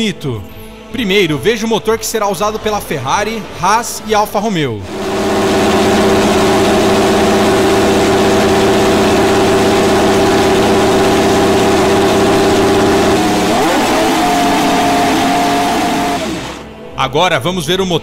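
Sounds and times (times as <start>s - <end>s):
race car engine idling: 4.8s - 16.7s.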